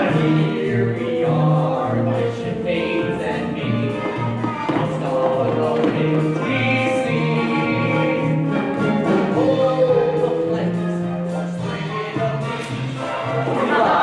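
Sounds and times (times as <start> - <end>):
cast singing together: 0.0 - 14.0
pit orchestra: 0.0 - 14.0.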